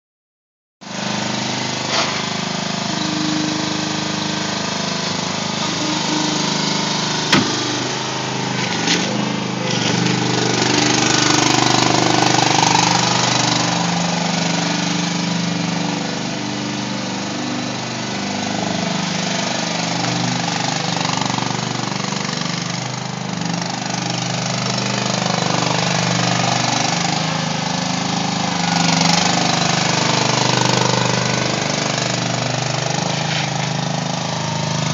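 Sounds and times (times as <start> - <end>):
small engine running: 0.8 - 34.9
sharp knocks: 7.3 - 7.6.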